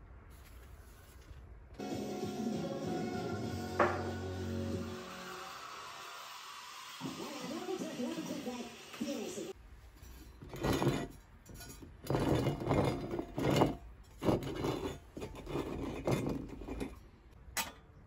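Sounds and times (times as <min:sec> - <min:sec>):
sheet metal scraping and clinking: 0:09.9 - 0:17.8.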